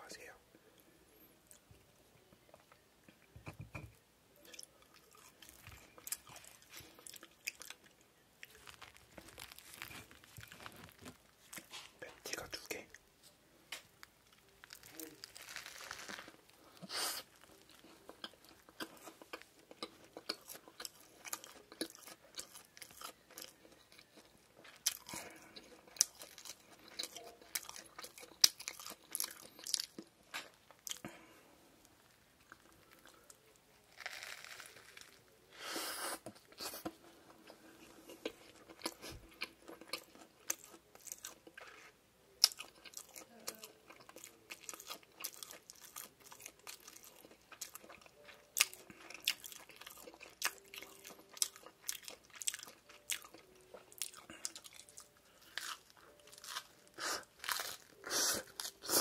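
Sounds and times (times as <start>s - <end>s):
crisp crunching bites: 8.4s - 11.7s, 14.4s - 16.4s, 33.9s - 35.2s, 57.4s - 59.0s
wet chewing: 14.3s - 31.3s, 36.2s - 59.0s.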